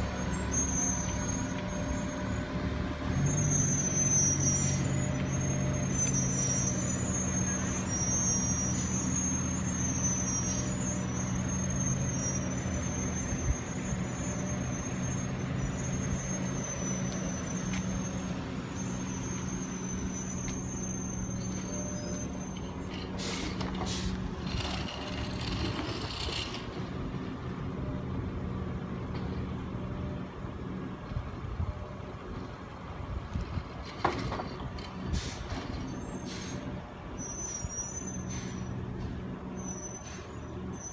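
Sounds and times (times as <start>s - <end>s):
diesel engine running: 0.0s - 40.9s
air brake hisses: 23.2s - 24.3s, 35.0s - 36.7s, 37.3s - 39.2s, 39.8s - 40.5s.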